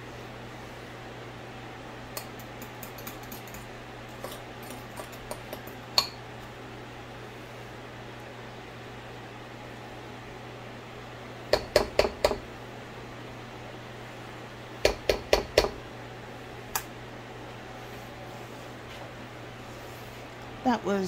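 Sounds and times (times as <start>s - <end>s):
kitchen fan humming: 0.0s - 21.0s
utensil tapping a dish: 11.5s - 12.4s, 14.8s - 15.8s.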